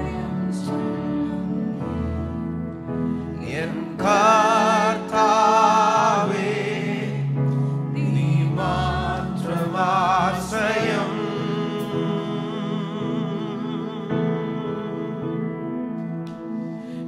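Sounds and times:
man singing into microphone: 0:03.5 - 0:06.9, 0:09.4 - 0:15.8.

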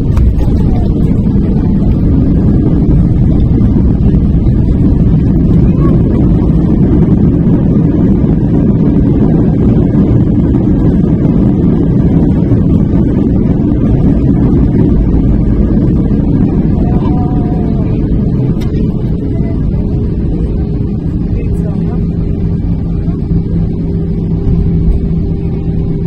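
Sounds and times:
airplane rolling out on runway: 0:00.0 - 0:26.0.

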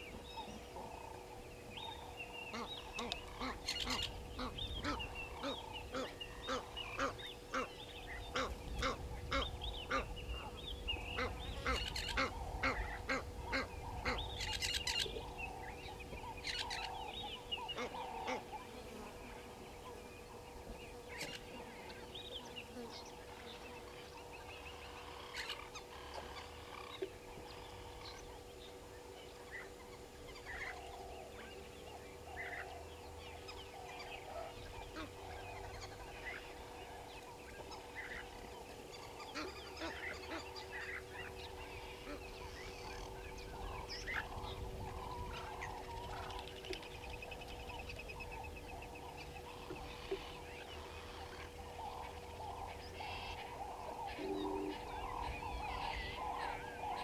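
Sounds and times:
faint bird calls: 0:00.0 - 0:57.0
goose honking: 0:02.5 - 0:07.7.

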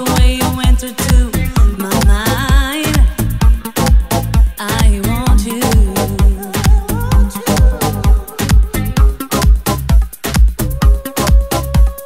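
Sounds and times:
dance music with steady beat: 0:00.0 - 0:12.0
wavering melody line: 0:03.0 - 0:09.7.

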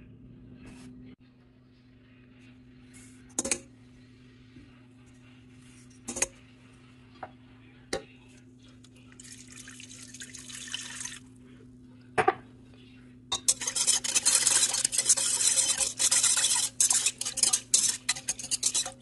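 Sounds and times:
steady low hum: 0:00.0 - 0:19.0
water pouring into bowl: 0:09.2 - 0:11.2
dishes clinking on metal bowl: 0:13.3 - 0:19.0.

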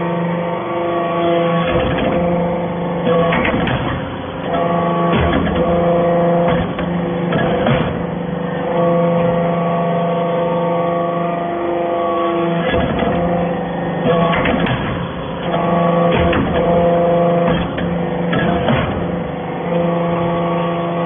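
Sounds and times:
hydraulic press humming: 0:00.0 - 0:21.0
metallic clanks and knocks: 0:03.0 - 0:08.2, 0:14.0 - 0:19.2.

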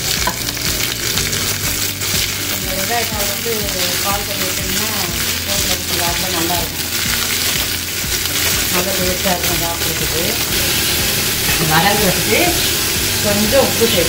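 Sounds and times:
vegetables sizzling in hot oil: 0:00.0 - 0:14.0.

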